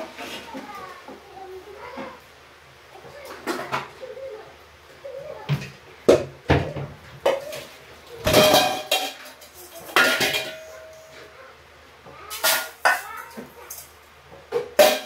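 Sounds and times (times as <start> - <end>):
metal utensils clattering: 7.3 - 11.2, 12.3 - 14.0, 14.6 - 15.0.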